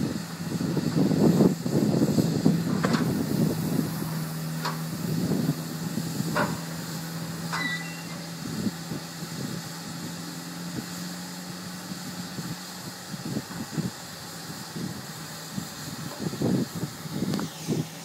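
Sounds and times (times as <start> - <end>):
steam locomotive low hum: 0.0 - 18.0.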